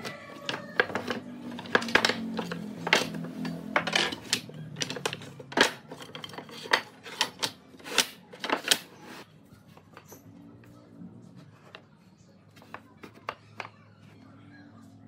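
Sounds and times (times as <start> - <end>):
wooden strips clacking: 0.0 - 9.2.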